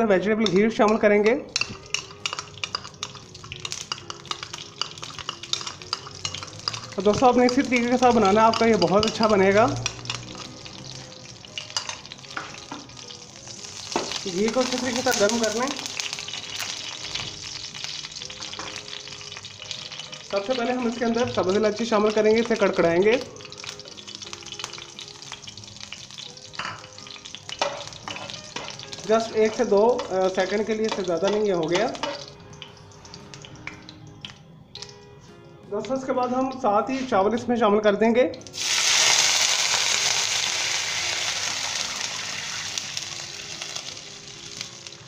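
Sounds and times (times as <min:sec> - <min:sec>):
spices sizzling in oil: 0:00.0 - 0:45.0
metal spoon stirring in pan: 0:00.4 - 0:12.2, 0:26.5 - 0:32.3.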